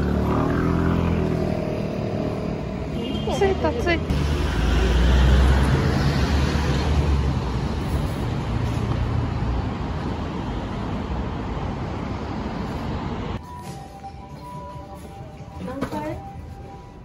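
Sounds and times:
traffic hum: 0.0s - 17.0s
vehicle passing close: 4.0s - 7.8s.

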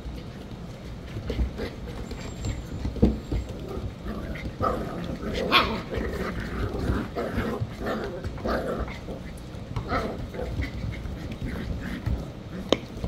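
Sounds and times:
puppies growling: 0.0s - 13.0s
puppies barking: 4.6s - 6.4s.

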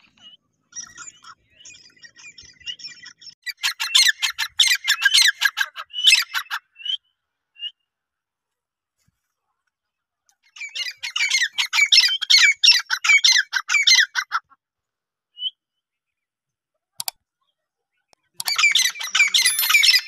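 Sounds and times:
click: 17.0s - 17.2s.

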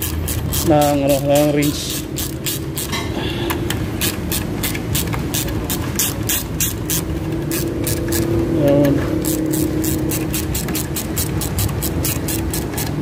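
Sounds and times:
ratchet wrench clicking: 0.0s - 13.0s
steady low hum: 0.0s - 13.0s.

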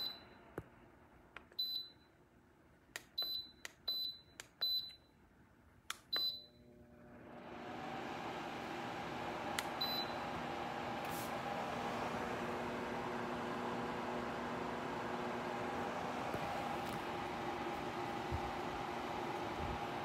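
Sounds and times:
fan whooshing with low hum: 7.3s - 20.0s.

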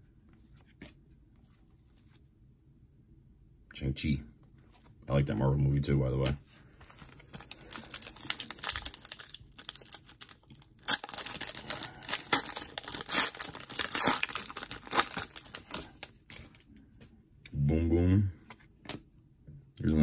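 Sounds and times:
foil wrapper crinkling and tearing: 7.0s - 16.6s.

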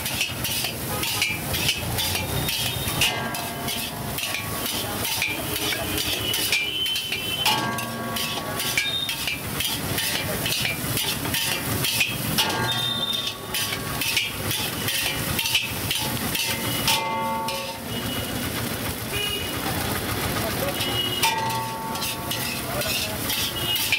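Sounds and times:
spatula scraping wok: 0.0s - 23.9s
vehicle horn tone: 17.6s - 19.7s, 20.7s - 21.4s.

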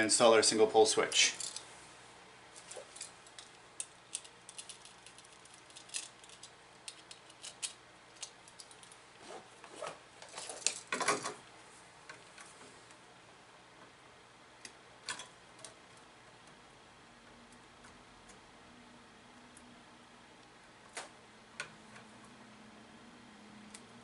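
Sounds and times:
wire strippers clicking: 2.7s - 9.0s.

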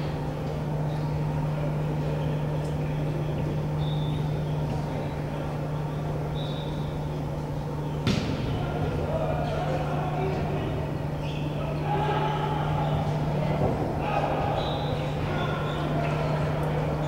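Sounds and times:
gym background hum: 0.0s - 17.0s
volleyball being struck: 8.0s - 8.7s.

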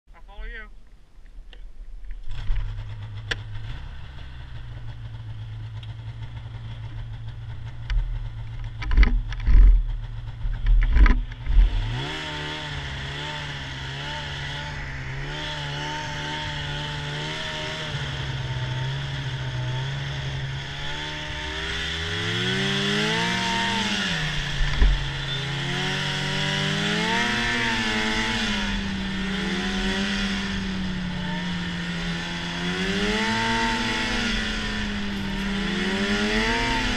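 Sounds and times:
snowmobile engine: 2.2s - 36.9s
loud thumps: 20.9s - 25.9s.

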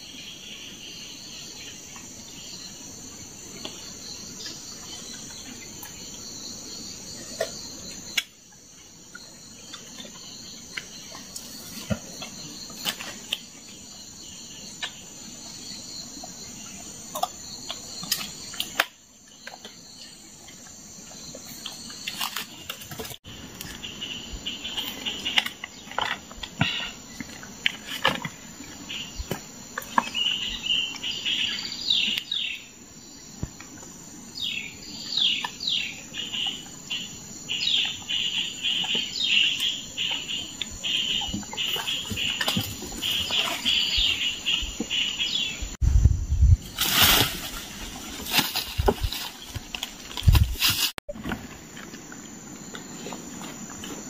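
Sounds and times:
rustles in dry leaf litter: 46.6s - 51.0s.

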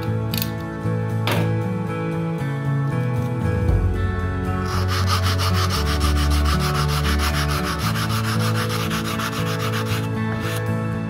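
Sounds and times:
sandpaper rubbing on wood: 4.6s - 10.6s.

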